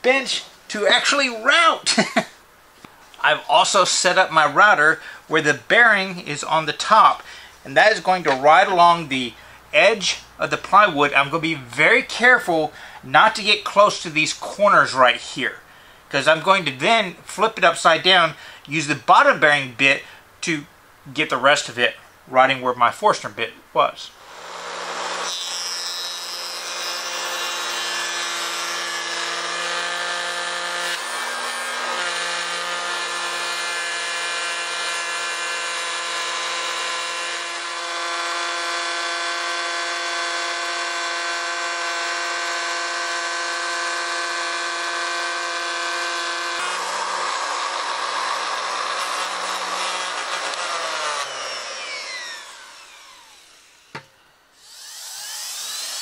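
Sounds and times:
router spinning down: 24.3 - 56.0
electric router whining: 26.5 - 56.0.

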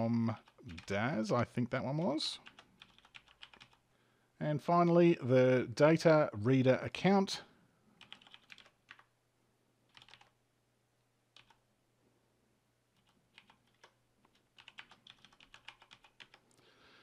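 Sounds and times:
faint keyboard typing: 0.0 - 3.9, 8.0 - 9.1, 9.8 - 10.4, 11.3 - 11.6, 12.9 - 16.6.

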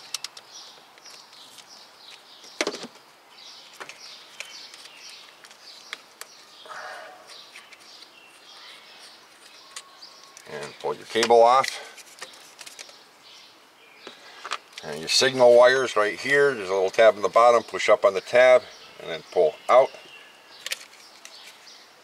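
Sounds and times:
faint bird chirps: 3.4 - 11.0.

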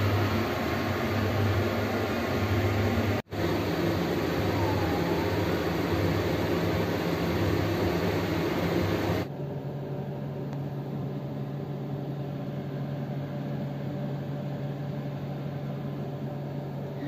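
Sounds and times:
low drone: 0.0 - 9.3
mechanical hum and whirr: 0.0 - 17.0.

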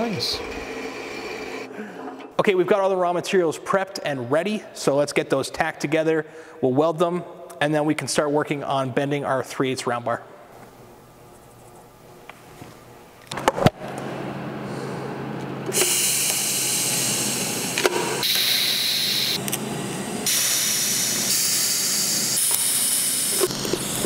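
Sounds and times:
welding arc hissing: 15.7 - 19.4, 20.2 - 24.0.

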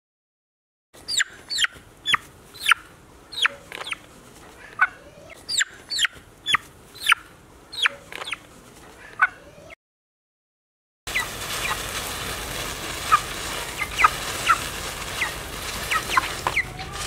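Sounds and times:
chick peeping: 1.0 - 4.0, 4.6 - 9.8, 11.1 - 11.8, 13.0 - 17.0.

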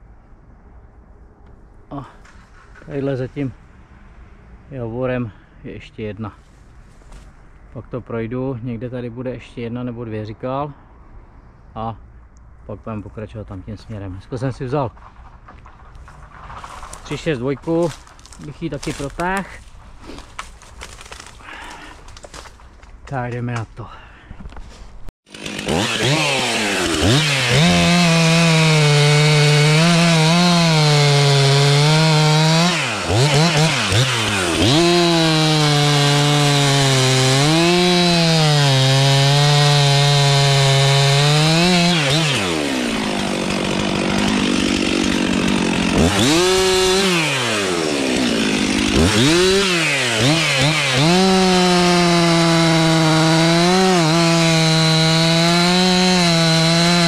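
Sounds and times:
chainsaw cutting tree: 20.0 - 22.6, 25.3 - 57.0.

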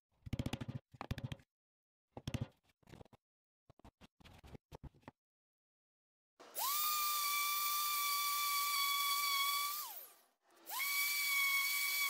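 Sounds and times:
power tool motor whining: 6.4 - 12.0.

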